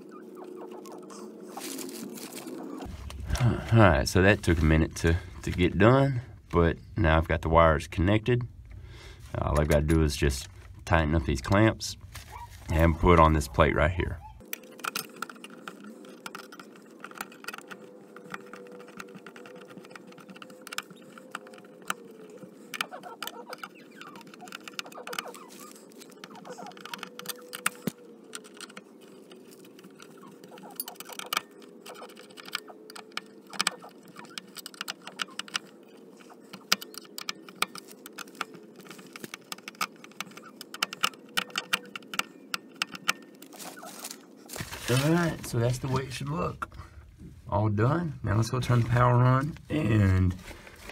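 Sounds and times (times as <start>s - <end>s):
steady low hum: 0.0s - 24.7s.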